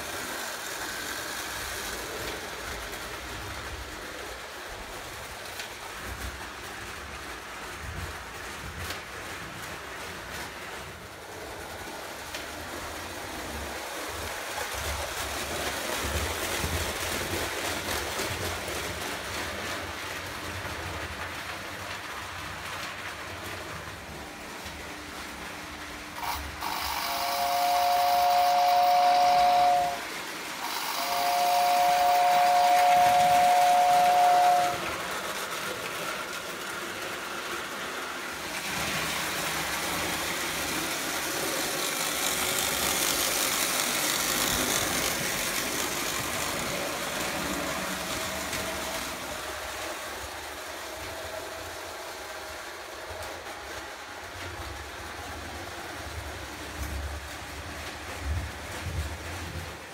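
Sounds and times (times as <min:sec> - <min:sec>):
toy train running on track: 0:00.0 - 0:59.9
toy train whistle: 0:26.2 - 0:35.1, 0:41.3 - 0:49.9.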